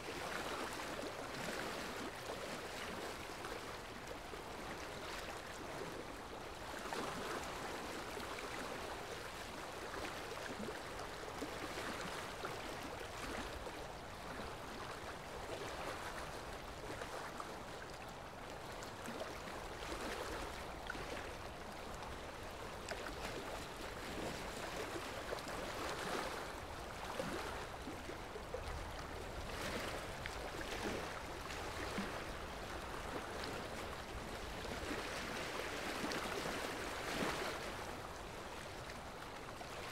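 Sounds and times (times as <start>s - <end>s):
flowing water stream: 0.0s - 39.9s.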